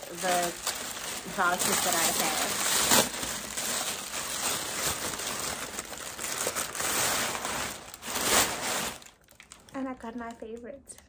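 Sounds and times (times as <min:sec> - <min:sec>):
packaging crinkling: 0:00.0 - 0:10.7.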